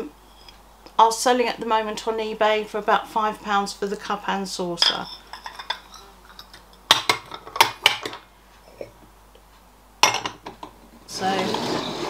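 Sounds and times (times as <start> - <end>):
stoneware cups and saucers clinking: 4.8 - 8.2.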